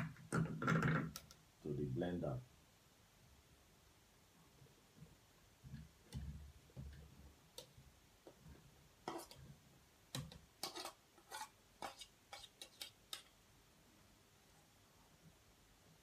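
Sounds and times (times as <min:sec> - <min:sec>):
knife scraping plastic bowl: 0:09.0 - 0:09.4, 0:10.1 - 0:13.3.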